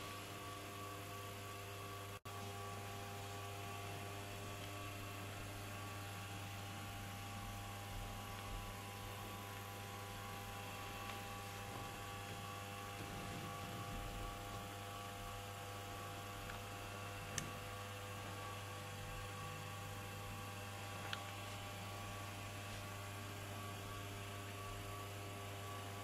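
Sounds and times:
electrical mains hum: 0.0 - 26.0
small clicks: 17.3 - 17.6.

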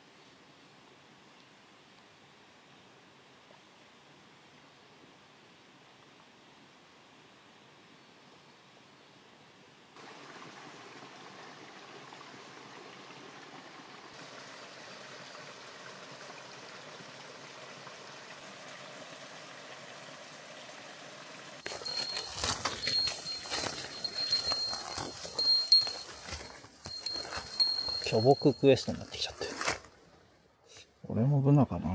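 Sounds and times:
running water: 10.0 - 29.1
rustling and knocking: 21.6 - 28.6
high thin pulsing tone: 21.6 - 29.0.

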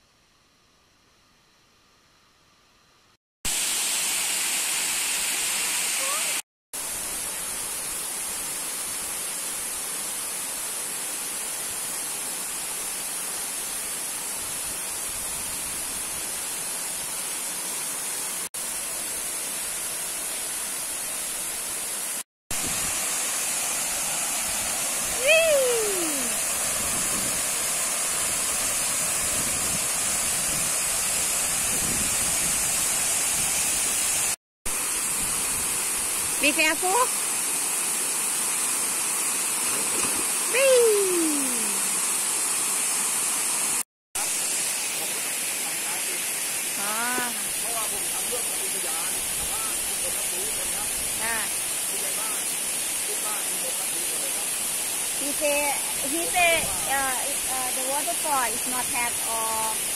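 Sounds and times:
waterfall rushing: 22.1 - 35.2.

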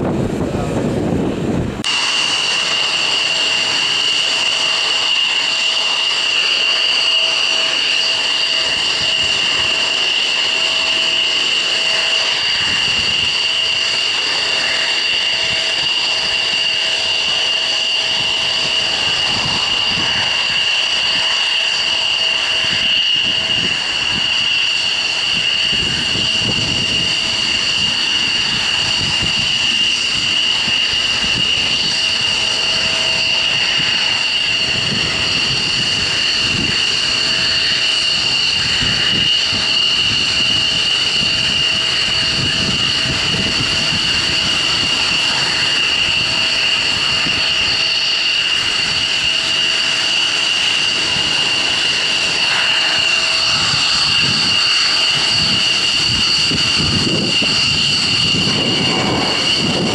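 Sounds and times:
turbine engine whine: 0.0 - 59.9.

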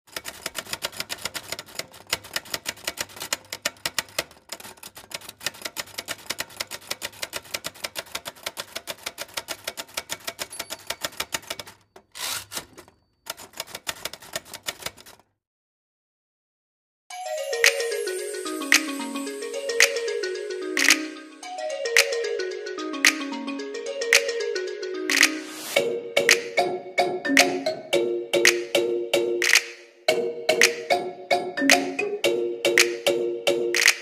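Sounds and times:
typewriter key strikes: 0.1 - 15.2.

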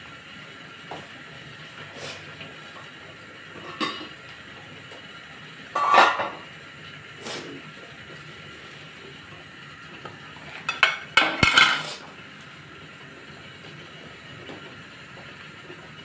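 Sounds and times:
pot lid clinking and scraping: 5.8 - 6.4, 10.7 - 12.0.

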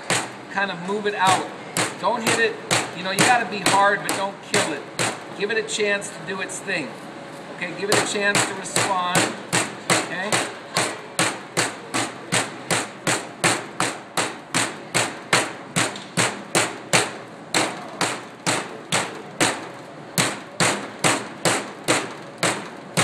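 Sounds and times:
metal mallet pounding meat: 0.0 - 5.4, 7.8 - 23.0.

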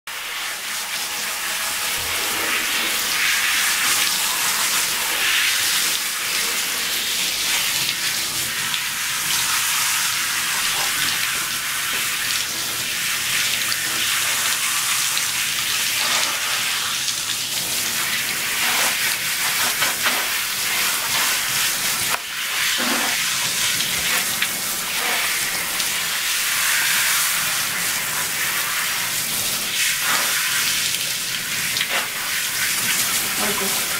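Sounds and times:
shower head spraying water: 0.1 - 33.9.

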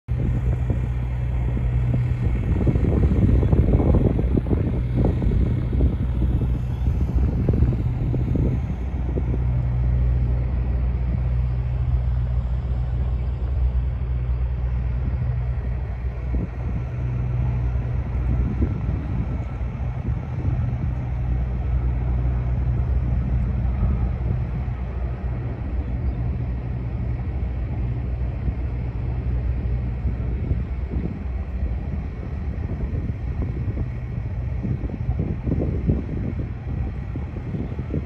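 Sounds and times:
traffic rumble: 0.0 - 38.0.

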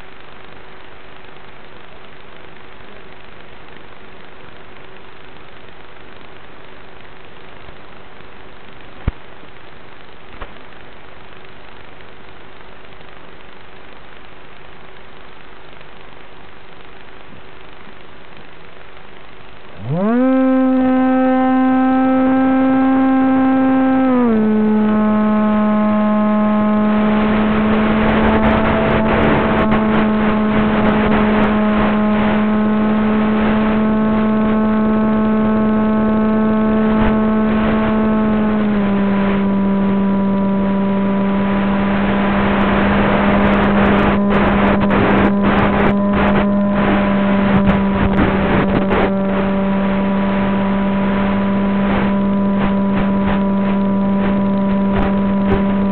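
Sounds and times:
scattered crackles: 0.0 - 20.0, 51.2 - 55.9
electric motor and propeller droning: 19.7 - 55.9.

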